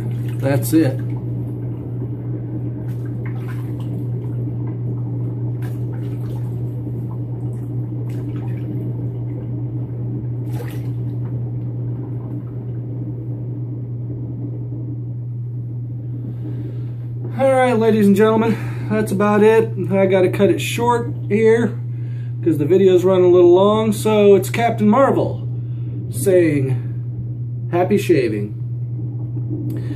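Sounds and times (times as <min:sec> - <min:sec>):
water splashes: 0:00.0 - 0:01.9, 0:02.7 - 0:09.6, 0:10.3 - 0:12.8
steady low hum: 0:00.0 - 0:29.9.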